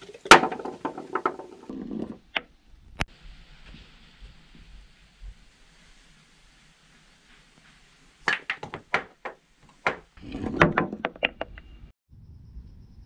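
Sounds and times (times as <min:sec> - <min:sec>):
billiard balls clacking: 0:00.0 - 0:02.4, 0:08.2 - 0:11.4
ball rolling into pocket: 0:00.2 - 0:02.3.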